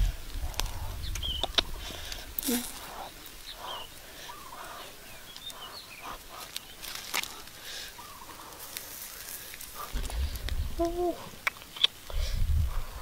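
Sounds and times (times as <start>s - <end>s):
birds chirping: 0.0s - 12.2s
embers popping and crackling: 0.0s - 13.0s.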